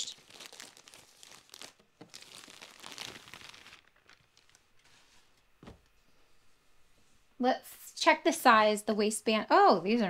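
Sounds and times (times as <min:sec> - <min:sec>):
plastic mailer bag crinkling: 0:00.0 - 0:05.0.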